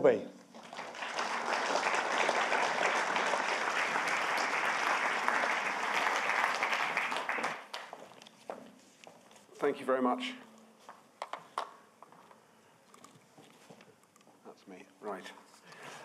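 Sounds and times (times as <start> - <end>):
audience applauding: 0.5 - 8.0.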